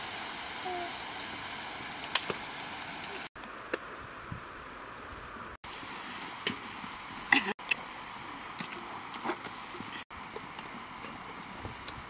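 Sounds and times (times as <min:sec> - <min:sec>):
river hiss: 0:00.0 - 0:12.0
high insect whine: 0:02.2 - 0:05.6.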